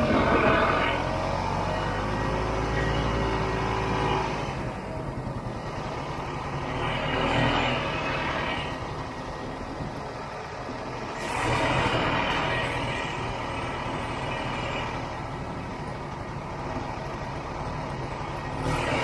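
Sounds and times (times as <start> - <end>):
snowmobile engine running: 0.0 - 10.0.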